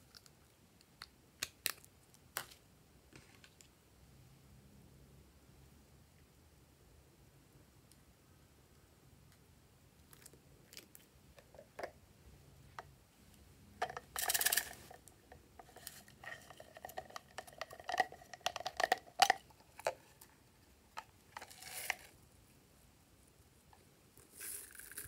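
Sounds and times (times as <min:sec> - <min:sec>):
plastic spatula clicks and dabs: 0:13.8 - 0:20.3.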